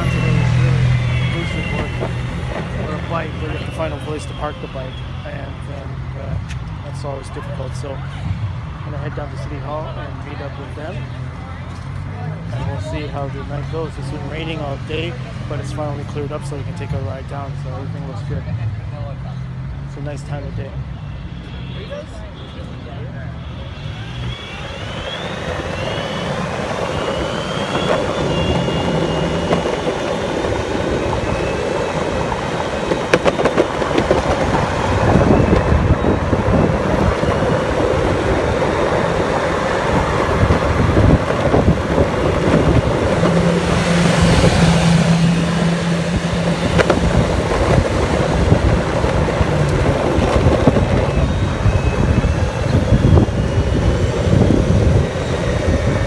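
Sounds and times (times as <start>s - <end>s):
bike road noise: 0.0s - 56.0s
passing traffic: 0.0s - 56.0s
wind on microphone: 25.2s - 56.0s.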